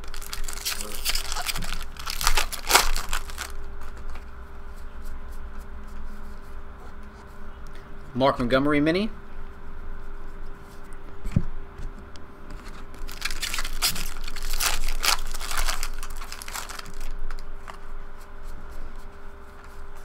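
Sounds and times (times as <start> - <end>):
foil wrapper crinkling: 0.0 - 3.7, 12.5 - 17.5
trading cards being shuffled: 0.0 - 4.3, 12.5 - 17.8.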